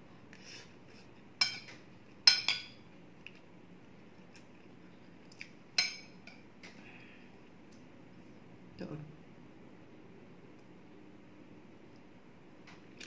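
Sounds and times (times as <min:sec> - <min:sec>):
fork clinking and scraping on plate: 0:05.8 - 0:06.4.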